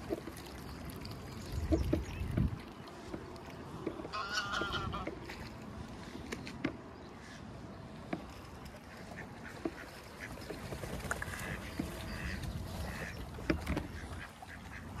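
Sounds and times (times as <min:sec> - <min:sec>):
low rumble of water: 0:00.0 - 0:15.0
water splashing: 0:00.0 - 0:15.0
ducks calling: 0:04.1 - 0:05.5, 0:08.8 - 0:15.0.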